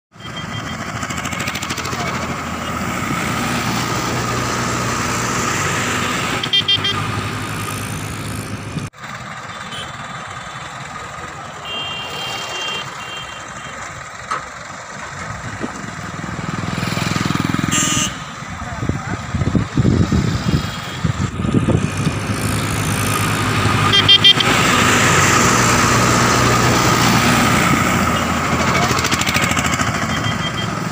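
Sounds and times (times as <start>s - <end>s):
heavy vehicle engines passing: 0.1s - 30.9s
vehicle horn blast: 6.4s - 7.2s, 9.6s - 10.0s, 11.6s - 13.8s, 17.6s - 18.4s, 23.8s - 24.6s
brief high beep: 29.9s - 30.8s.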